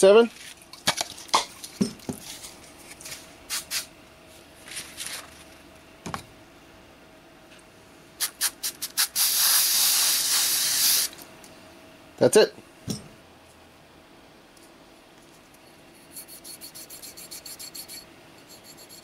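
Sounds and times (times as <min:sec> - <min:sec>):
aerosol can spraying hiss: 0:08.2 - 0:11.2.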